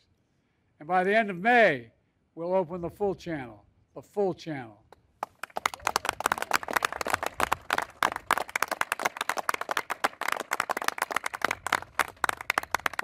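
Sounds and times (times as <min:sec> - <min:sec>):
crowd applauding: 0:05.2 - 0:13.0.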